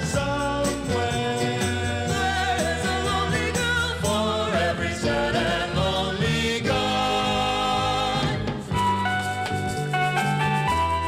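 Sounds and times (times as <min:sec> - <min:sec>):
person singing with vibrato: 0:00.0 - 0:08.7
band playing: 0:00.0 - 0:11.0.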